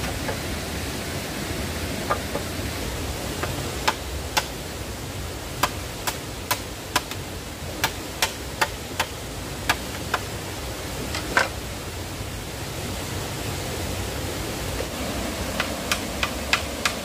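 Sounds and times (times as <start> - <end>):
stream rushing: 0.0 - 17.0
machete striking bamboo: 3.4 - 4.6, 5.6 - 7.2, 7.8 - 10.2, 15.6 - 17.0.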